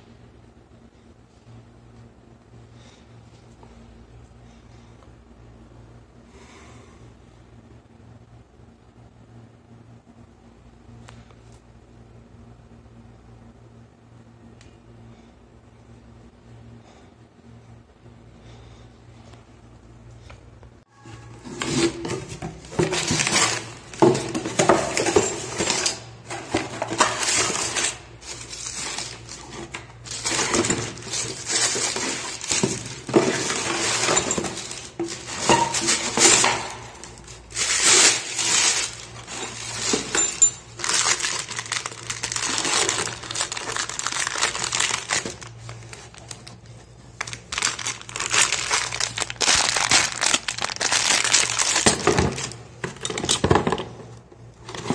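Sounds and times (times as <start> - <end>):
cardboard and plastic rustling: 21.1 - 54.0, 54.6 - 54.9
metal parts clinking: 22.7 - 45.4.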